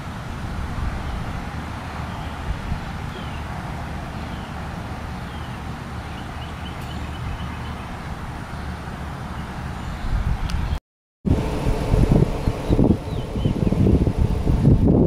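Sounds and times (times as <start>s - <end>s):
wind rumbling on microphone: 0.0s - 4.0s, 9.9s - 15.0s.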